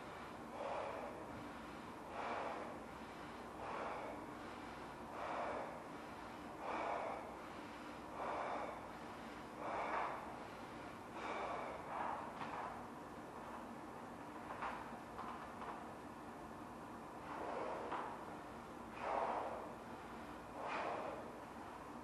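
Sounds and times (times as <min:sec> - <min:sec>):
short sharp breaths: 0:00.0 - 0:12.7, 0:17.2 - 0:18.2, 0:18.9 - 0:21.4.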